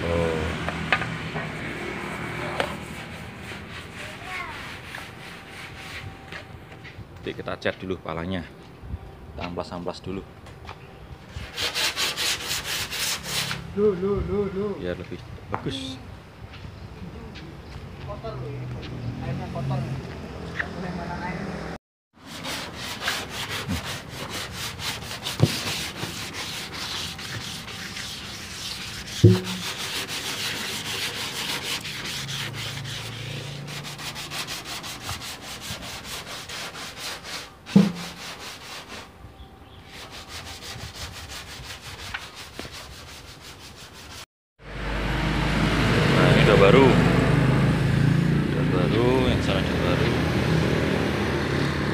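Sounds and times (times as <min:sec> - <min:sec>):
sandpaper rasping on metal: 0:02.5 - 0:06.2, 0:11.4 - 0:13.7, 0:22.2 - 0:39.1, 0:39.8 - 0:44.3
sharp knocks against panel: 0:37.8 - 0:38.2.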